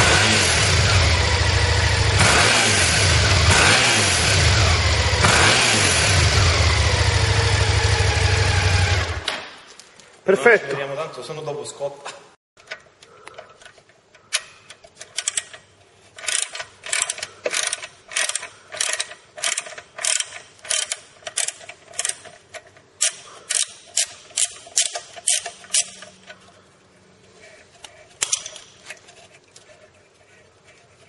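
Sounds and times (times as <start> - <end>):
ratchet wrench clicking: 14.3 - 15.6, 16.2 - 26.3.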